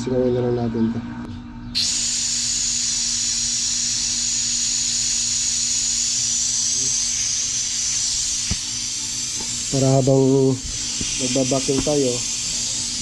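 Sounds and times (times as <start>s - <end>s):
loud steady gas hiss: 1.8s - 13.0s.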